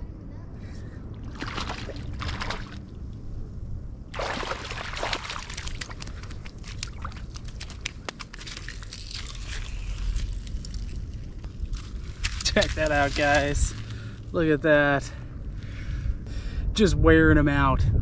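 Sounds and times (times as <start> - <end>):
fish splashing in water: 1.3 - 2.8, 4.1 - 10.8.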